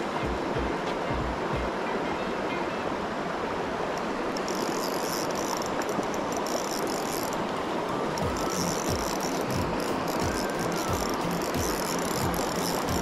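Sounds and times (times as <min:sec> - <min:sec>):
shallow river rushing: 0:00.0 - 0:13.0
fishing reel whirring: 0:03.9 - 0:13.0.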